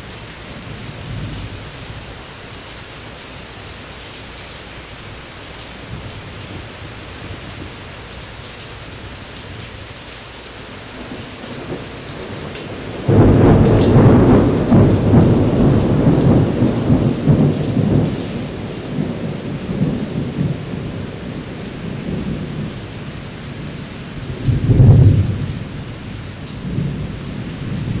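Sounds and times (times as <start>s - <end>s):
steady rain: 0.0s - 28.0s
thunder rumbling: 10.8s - 28.0s.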